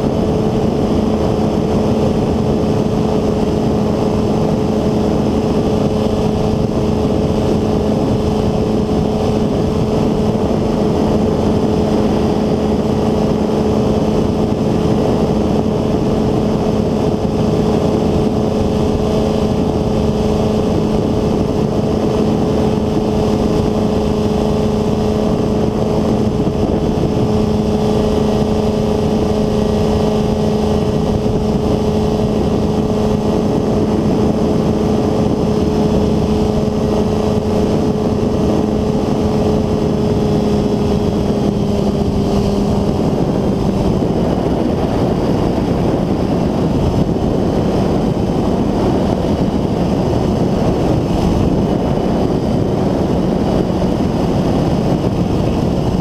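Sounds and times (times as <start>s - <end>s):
ultralight engine and propeller drone: 0.0s - 56.0s.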